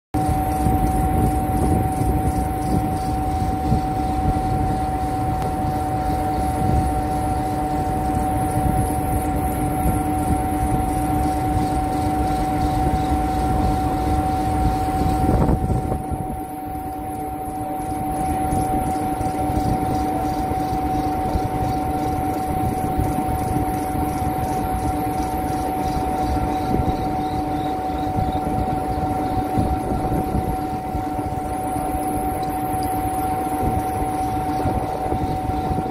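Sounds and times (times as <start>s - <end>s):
conveyor belt rumble: 0.2s - 35.9s
two-tone hum: 0.2s - 35.9s.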